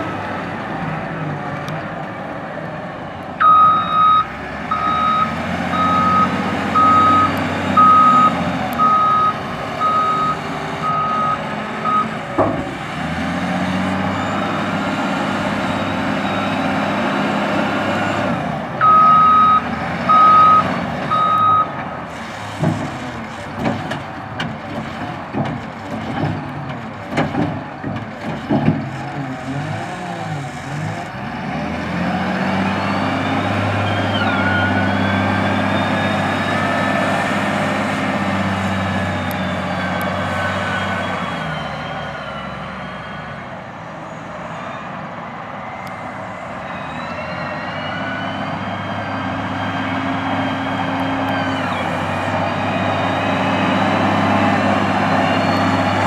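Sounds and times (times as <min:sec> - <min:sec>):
diesel engine running: 0:00.0 - 0:56.0
reversing alarm beeps: 0:03.4 - 0:12.1, 0:18.8 - 0:21.7
sharp knocks and clanks: 0:23.6 - 0:29.0.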